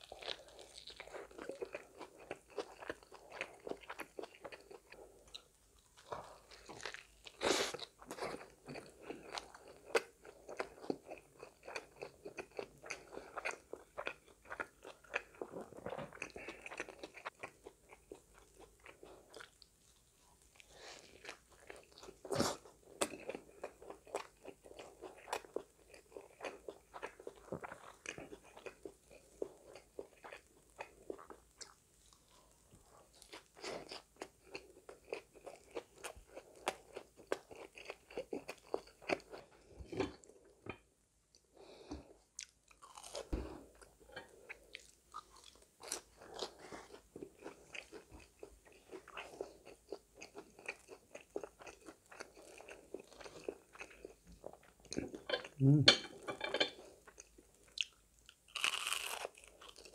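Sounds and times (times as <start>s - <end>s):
crunchy biting and chewing: 0.0s - 19.6s, 42.4s - 54.2s, 55.0s - 59.9s.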